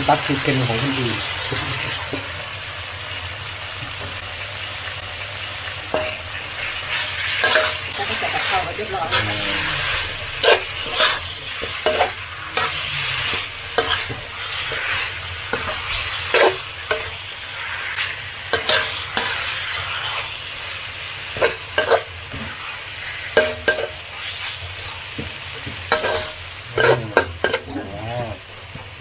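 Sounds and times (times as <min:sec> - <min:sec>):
stir-fry sizzling in a pan: 0:00.0 - 0:29.0
spatula scraping and knocking pan: 0:05.9 - 0:17.2, 0:17.9 - 0:19.5, 0:21.4 - 0:22.6, 0:23.3 - 0:24.2, 0:24.8 - 0:27.7.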